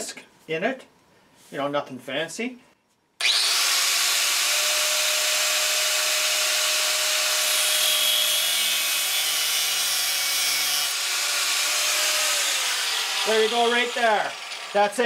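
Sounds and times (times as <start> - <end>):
angle grinder cutting steel: 3.2 - 15.0.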